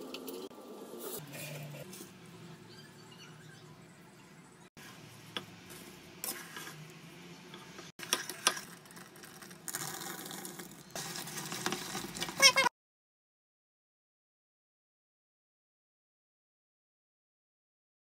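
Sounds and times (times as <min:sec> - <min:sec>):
spoon scraping thick mixture: 0:05.7 - 0:06.9.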